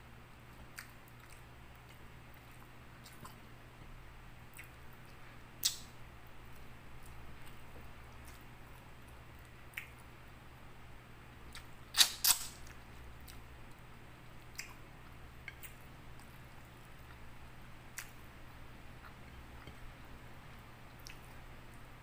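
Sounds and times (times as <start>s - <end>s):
wet chewing clicks: 14.5s - 16.3s.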